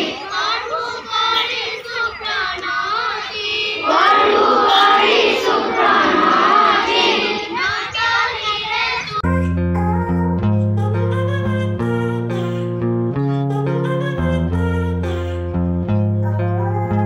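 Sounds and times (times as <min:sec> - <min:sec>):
children singing in unison: 0:00.0 - 0:09.2.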